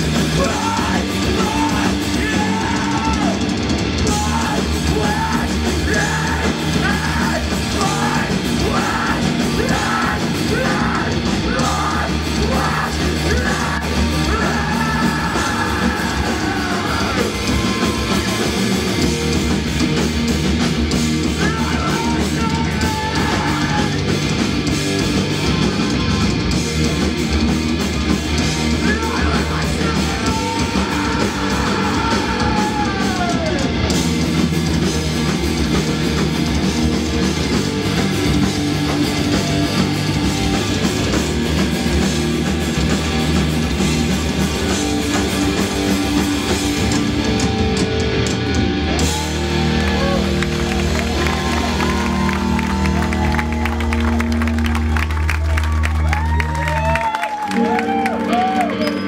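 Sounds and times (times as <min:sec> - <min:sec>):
loud live rock band: 0:00.0 - 0:59.0.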